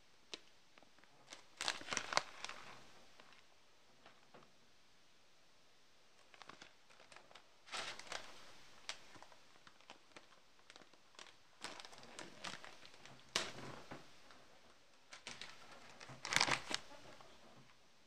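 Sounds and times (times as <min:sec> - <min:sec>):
plastic packet crinkling: 0:01.2 - 0:03.4, 0:06.2 - 0:13.8, 0:15.1 - 0:17.2.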